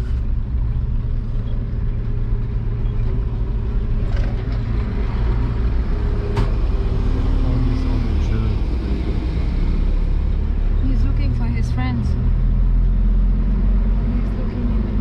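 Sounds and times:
truck engine low rumble: 0:00.0 - 0:15.0.

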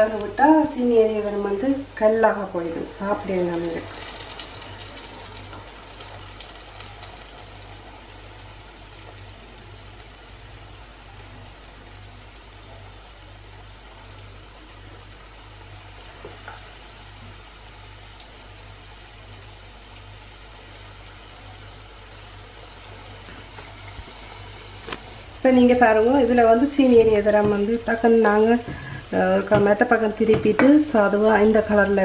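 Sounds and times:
dough sizzling in hot oil: 0:00.0 - 0:32.0.

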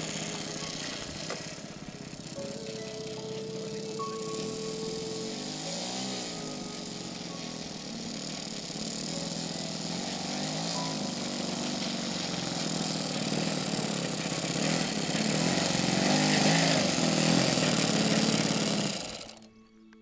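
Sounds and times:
soft steady music tones: 0:00.0 - 0:14.7, 0:19.3 - 0:20.0
model airplane engine running: 0:00.0 - 0:20.0.

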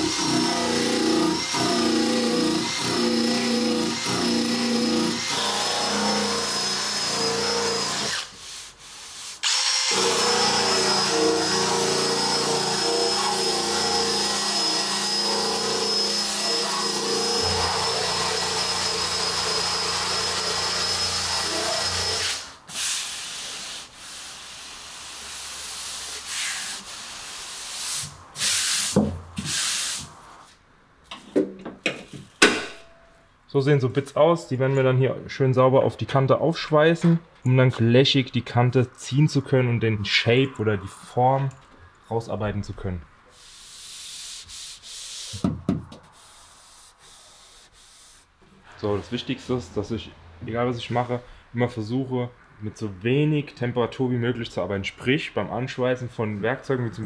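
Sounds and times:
power sander on metal: 0:09.5 - 0:22.4.

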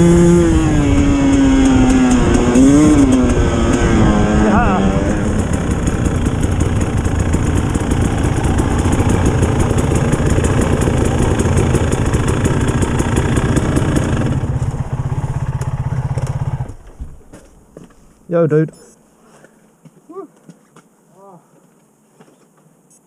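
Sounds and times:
dirt bike engine idling: 0:00.0 - 0:17.8.

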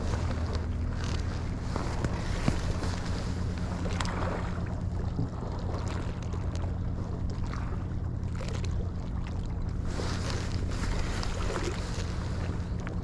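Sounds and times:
wind on microphone: 0:00.0 - 0:05.7
boat engine humming: 0:00.0 - 0:13.0.

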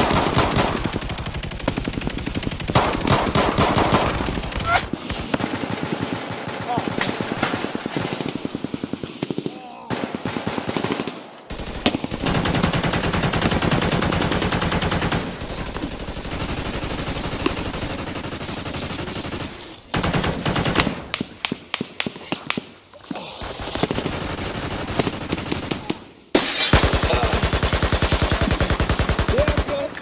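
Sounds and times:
automatic gunfire bursts: 0:00.0 - 0:07.4, 0:26.4 - 0:30.0.

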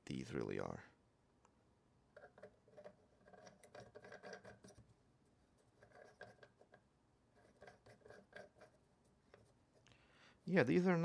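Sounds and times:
plastic parts clicking and rubbing: 0:02.1 - 0:04.9.

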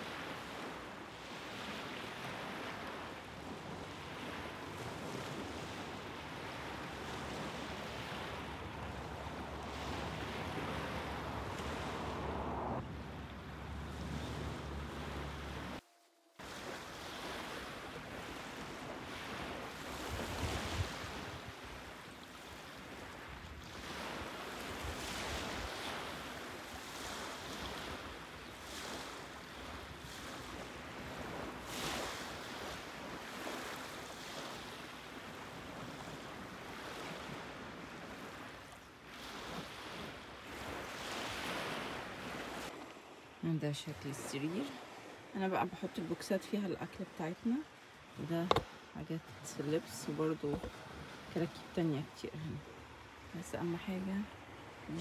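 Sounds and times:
small waves washing onto beach: 0:00.0 - 0:55.0
wind buffeting microphone: 0:08.1 - 0:15.7.

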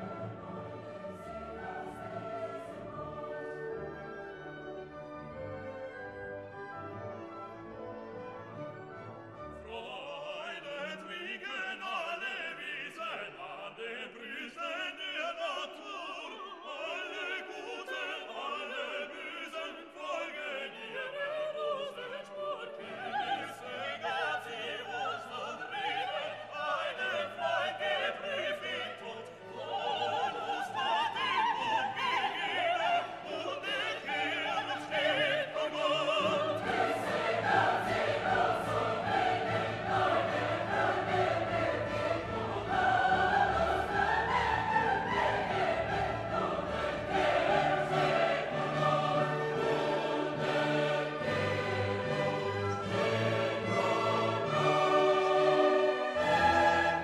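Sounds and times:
operatic singing: 0:00.0 - 0:04.6, 0:09.5 - 0:57.0
orchestra playing: 0:00.0 - 0:09.9, 0:34.6 - 0:57.0.

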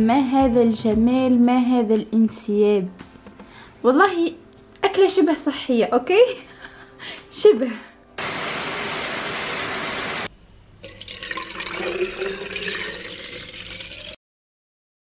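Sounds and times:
shower head spraying water: 0:08.2 - 0:10.3.

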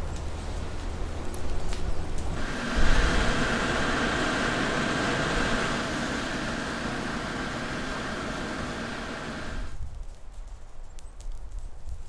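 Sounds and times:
machine running with high whine: 0:02.4 - 0:09.8.

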